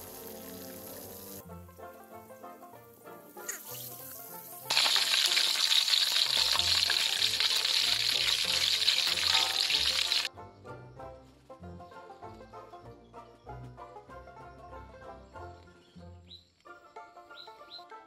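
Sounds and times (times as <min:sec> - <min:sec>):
hot oil sizzling in a wok: 0:00.0 - 0:01.4, 0:03.3 - 0:10.3
background music: 0:00.0 - 0:18.0.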